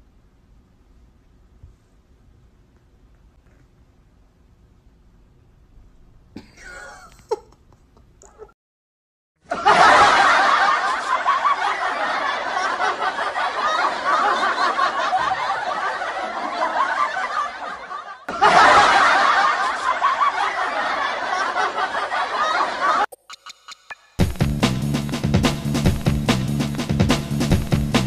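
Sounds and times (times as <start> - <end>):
crowd laughing: 9.4 - 23.1.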